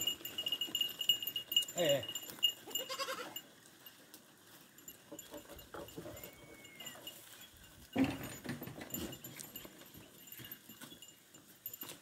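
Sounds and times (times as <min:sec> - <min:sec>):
knocks of goats moving: 0:00.0 - 0:12.0
goat bleating: 0:02.6 - 0:03.5.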